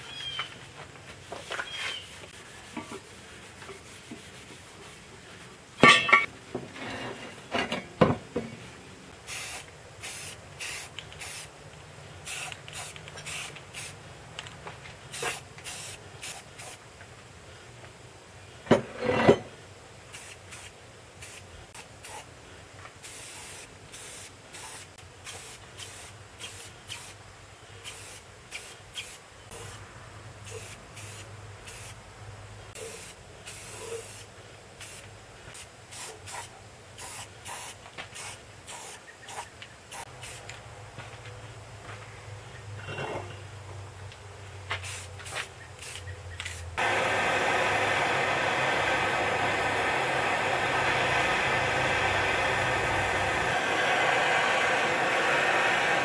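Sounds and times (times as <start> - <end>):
spray paint can hissing: 9.3 - 11.5, 12.2 - 14.0, 15.1 - 16.8, 20.1 - 22.2, 23.0 - 27.2, 27.8 - 29.8, 30.5 - 32.0, 32.8 - 40.5, 44.8 - 47.0.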